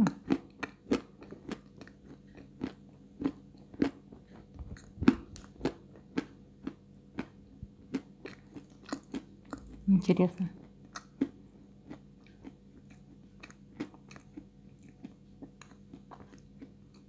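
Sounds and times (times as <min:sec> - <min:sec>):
chewing crunchy clay: 0:00.0 - 0:09.9, 0:10.6 - 0:17.0.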